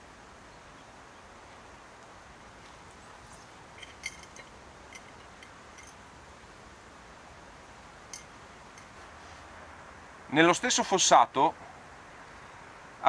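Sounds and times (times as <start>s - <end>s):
steady soft hiss: 0.0s - 13.0s
clinks against glass jar: 3.7s - 6.0s, 8.1s - 8.9s.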